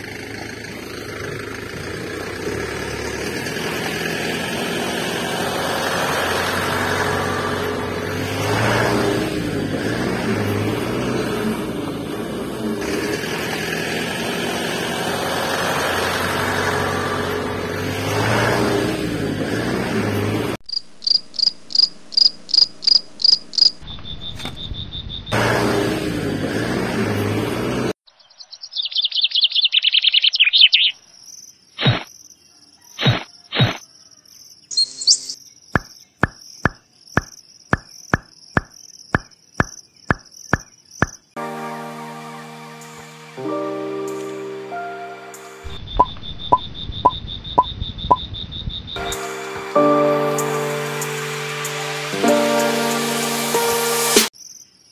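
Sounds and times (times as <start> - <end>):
vehicle engine running: 0.0 - 23.8
cricket-like chirps with clicks: 20.7 - 25.4, 28.2 - 41.4, 45.7 - 49.1, 54.4 - 54.9
bird chirps and trills: 28.1 - 31.0, 34.6 - 41.3.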